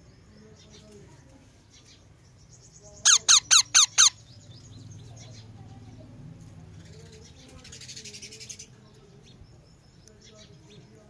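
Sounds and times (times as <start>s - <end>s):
faint bird chirping: 0.0s - 11.0s
parakeet squawking: 3.0s - 4.2s.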